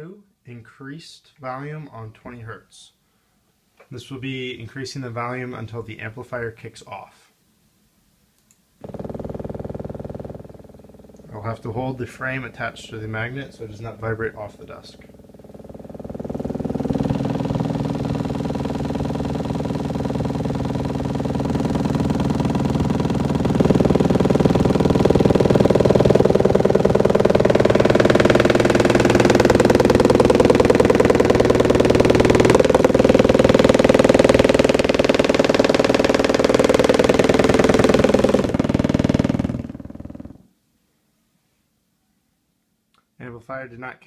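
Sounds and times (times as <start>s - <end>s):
subwoofer test tone buzz: 8.8s - 40.5s.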